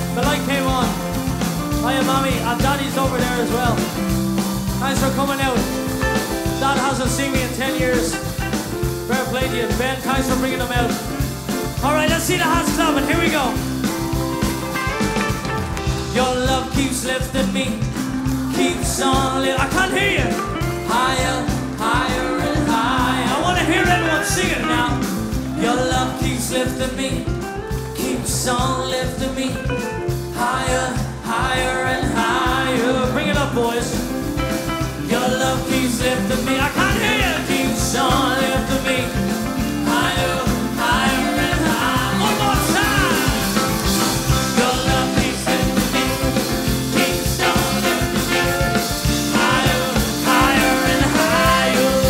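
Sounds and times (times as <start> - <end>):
person singing: 0.0 - 1.2, 6.5 - 13.7, 16.0 - 34.2, 35.0 - 52.0
swing band playing: 0.0 - 52.0.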